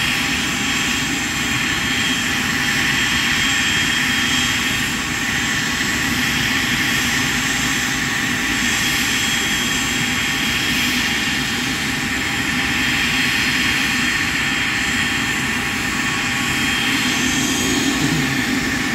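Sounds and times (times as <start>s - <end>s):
jet engines idling: 0.0s - 18.9s.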